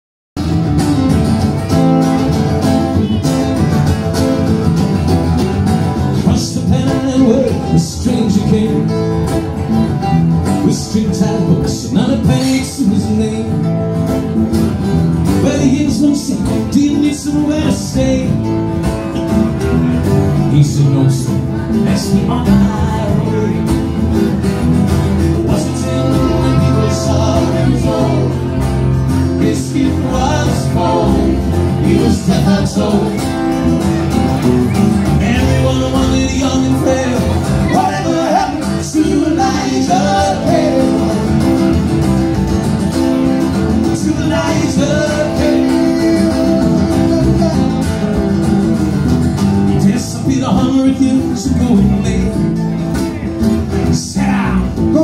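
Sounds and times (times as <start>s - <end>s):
bass line: 0.4s - 55.0s
strummed acoustic guitars: 0.4s - 55.0s
man singing: 5.9s - 14.4s, 15.2s - 19.6s, 20.3s - 33.8s, 35.0s - 42.0s, 43.6s - 48.8s, 49.7s - 55.0s.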